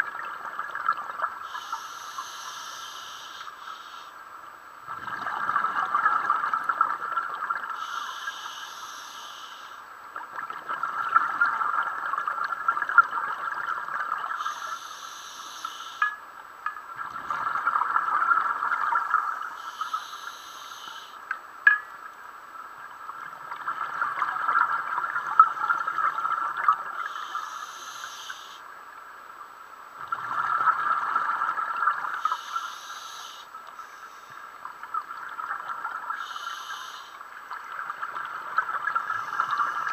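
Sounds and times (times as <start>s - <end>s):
regulator inhale hiss: 1.4s - 4.2s, 7.8s - 9.8s, 14.4s - 16.0s, 19.3s - 21.2s, 27.0s - 28.6s, 32.1s - 34.5s, 36.1s - 37.2s
exhaled bubbles rushing: 4.9s - 7.7s.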